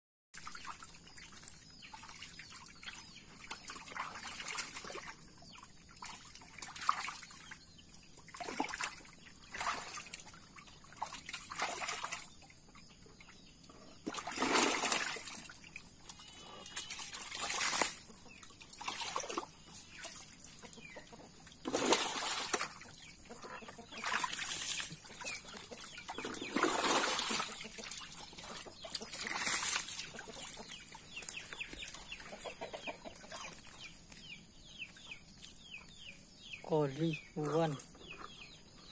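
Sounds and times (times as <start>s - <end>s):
muddy water splashing and pouring: 0.4s - 35.8s
chickens clucking: 19.6s - 21.8s, 22.6s - 36.2s.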